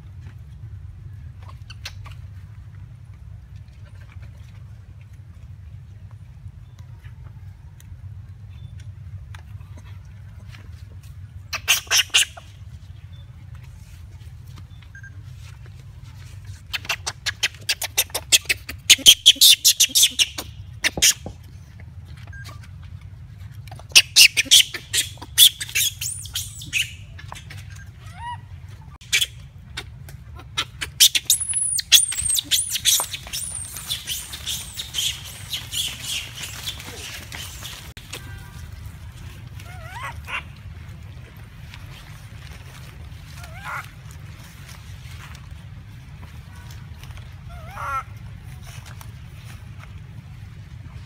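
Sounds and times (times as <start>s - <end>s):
monkey squealing: 11.5s - 12.4s, 16.7s - 21.2s, 23.9s - 27.0s, 30.5s - 37.9s, 39.7s - 40.5s.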